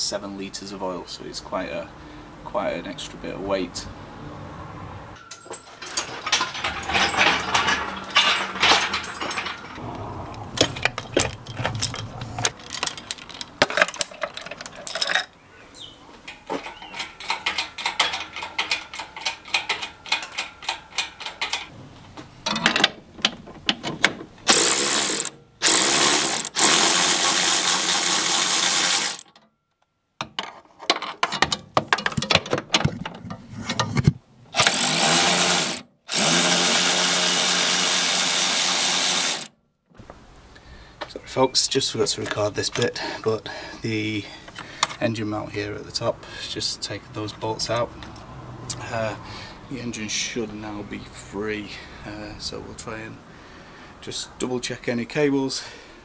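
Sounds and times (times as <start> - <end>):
power ratchet running: 24.5 - 29.3, 34.6 - 39.5.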